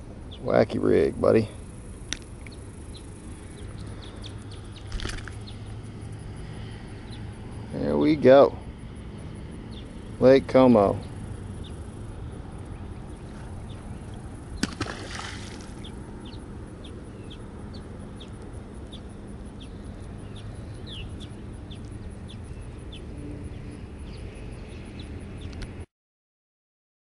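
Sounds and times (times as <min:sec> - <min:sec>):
outdoor background: 0:00.0 - 0:25.9
fish splashing into water: 0:04.9 - 0:05.5, 0:14.0 - 0:16.0.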